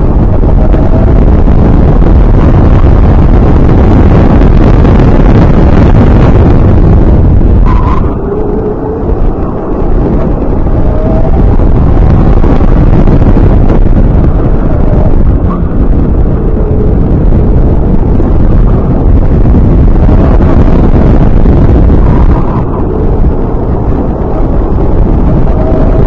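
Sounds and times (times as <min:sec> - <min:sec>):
electric motor whine: 0:00.0 - 0:26.0
wind buffeting microphone: 0:00.0 - 0:26.0.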